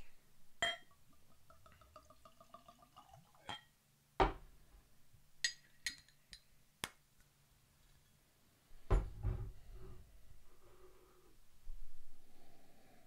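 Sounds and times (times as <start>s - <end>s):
glass clinks: 0.6s - 0.9s.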